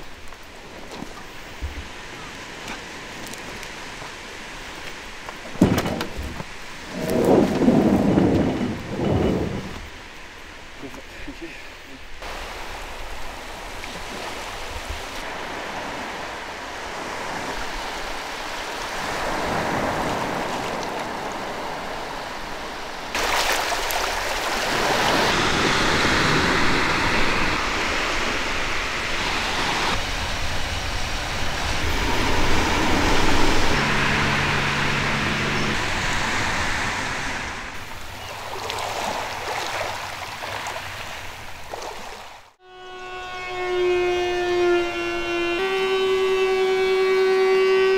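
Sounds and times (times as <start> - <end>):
small waves washing onto beach: 6.2 - 42.6.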